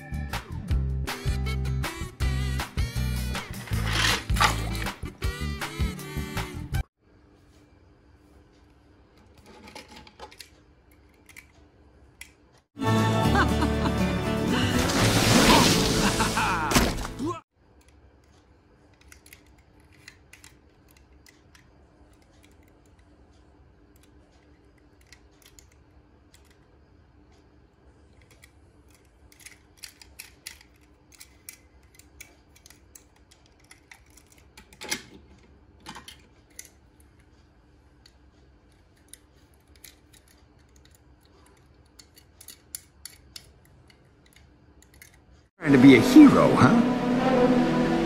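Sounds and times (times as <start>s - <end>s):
metal toy cars clicking: 18.9s - 23.1s, 23.9s - 26.7s, 28.1s - 37.3s, 38.0s - 45.4s.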